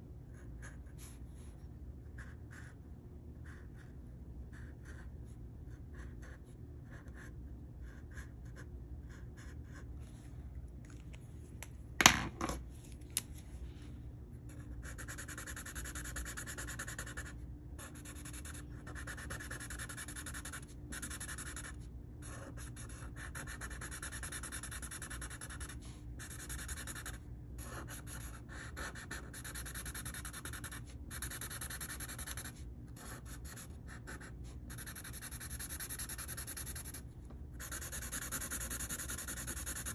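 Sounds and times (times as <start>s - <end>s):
marker rubbing on paper: 14.6s - 37.0s, 37.6s - 39.9s.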